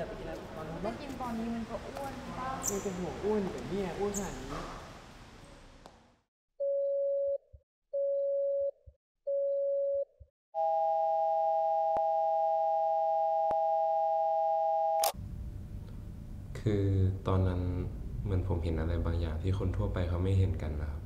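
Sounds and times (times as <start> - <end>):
two-note telephone tone: 6.6 - 7.4, 8.0 - 15.1.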